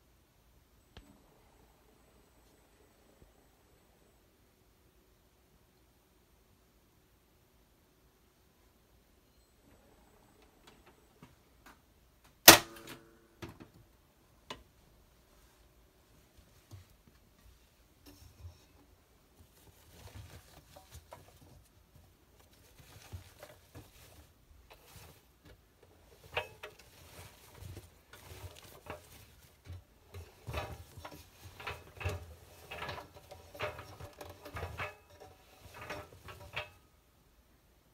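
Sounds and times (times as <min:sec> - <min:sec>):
small clicks and soft knocks: 0:10.3 - 0:14.8
wet towels rustling in drum: 0:15.3 - 0:36.8.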